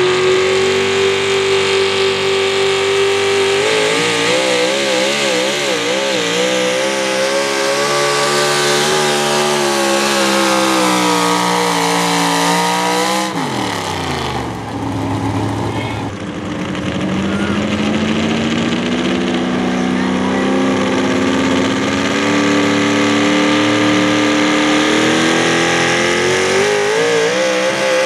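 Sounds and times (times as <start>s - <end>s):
supercharged engine running flat out: 0.0s - 28.0s.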